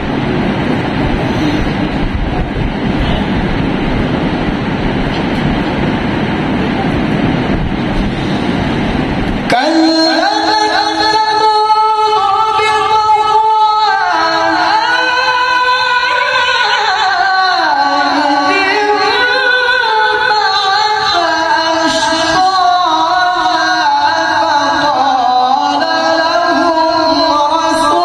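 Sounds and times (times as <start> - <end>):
man chanting through loudspeaker: 9.4 - 28.0.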